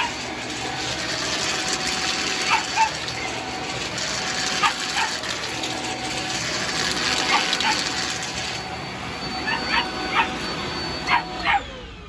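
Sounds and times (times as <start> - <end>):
stick vacuum running: 0.0 - 12.0
dog barking: 2.4 - 3.0, 4.6 - 5.3, 7.2 - 8.0, 9.4 - 10.4, 11.1 - 11.7.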